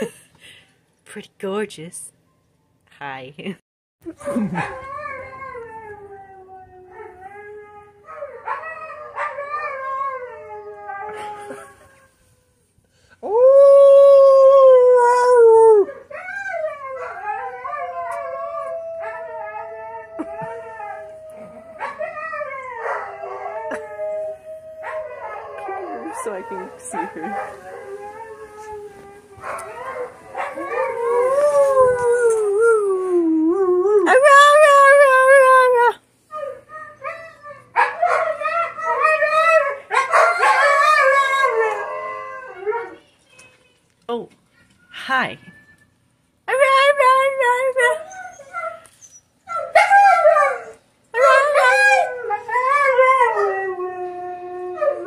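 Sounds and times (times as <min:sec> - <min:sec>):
dog howling: 0:13.3 - 0:33.1, 0:49.5 - 0:55.0.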